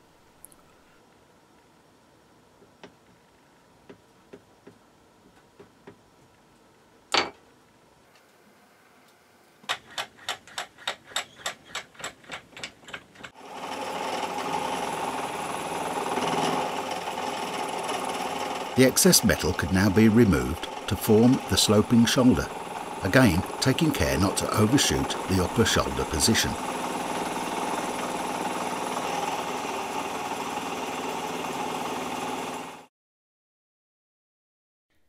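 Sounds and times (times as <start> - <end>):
milling machine running: 13.4 - 32.8.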